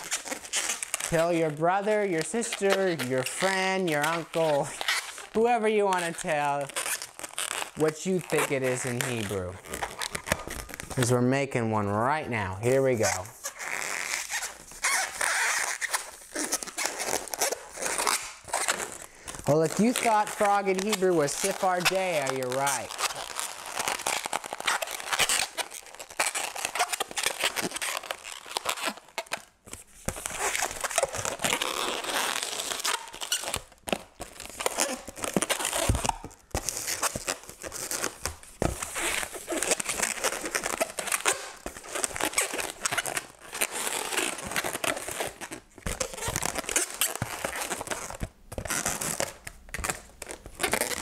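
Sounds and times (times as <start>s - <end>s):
balloons crinkling and twisting: 0.0s - 51.0s.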